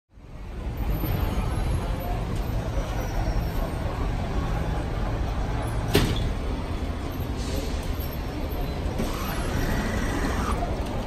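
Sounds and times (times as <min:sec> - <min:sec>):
road traffic rumble: 0:00.1 - 0:11.0
buses idling: 0:06.4 - 0:11.0.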